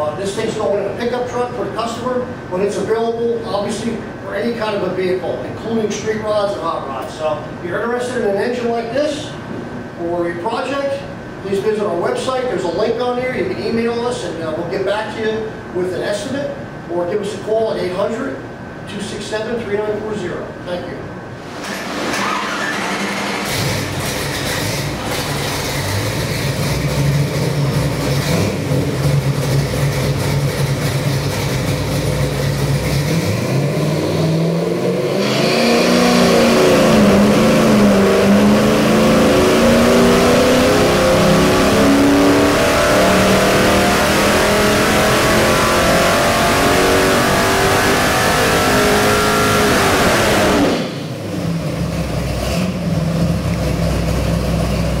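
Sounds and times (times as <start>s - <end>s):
car engine revving on a dyno: 21.4s - 55.0s.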